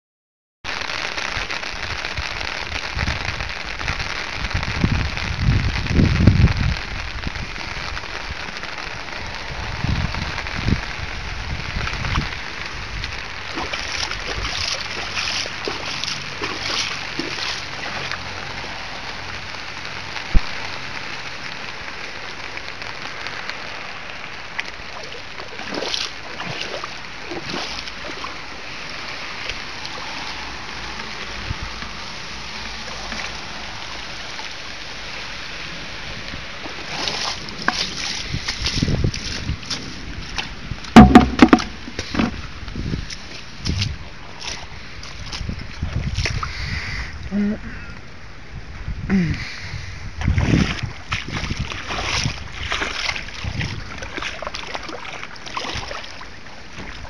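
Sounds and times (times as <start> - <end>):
rain falling on water: 0.7 - 49.4, 50.1 - 57.0
low rumbles on microphone: 2.8 - 18.7, 35.8 - 47.6, 48.4 - 54.5
boot sloshing through water: 13.3 - 18.4, 24.6 - 30.5, 36.2 - 46.5, 50.2 - 57.0.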